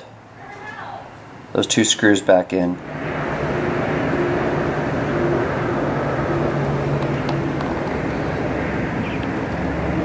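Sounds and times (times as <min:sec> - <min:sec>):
steady outdoor rumbling: 0:00.0 - 0:10.0
faint wavering low hum: 0:02.7 - 0:10.0.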